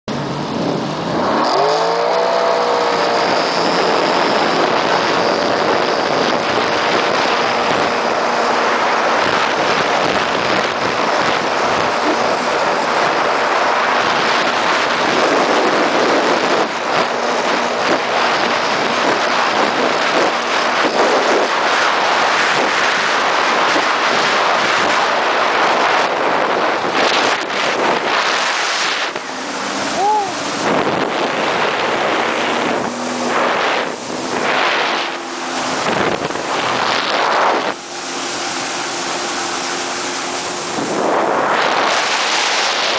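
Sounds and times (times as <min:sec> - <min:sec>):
jet ski engine revving: 0:00.1 - 0:42.9
wind and water rushing: 0:00.1 - 0:42.9.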